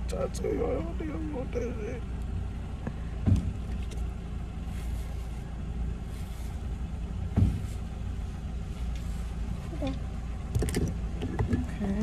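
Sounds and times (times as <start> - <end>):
car idling hum: 0.0 - 12.0
dull thumps: 3.1 - 4.1, 7.2 - 7.9.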